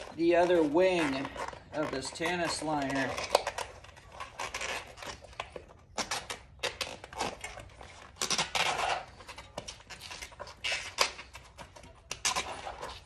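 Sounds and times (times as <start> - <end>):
foam scraping against tire rim: 0.0 - 13.0.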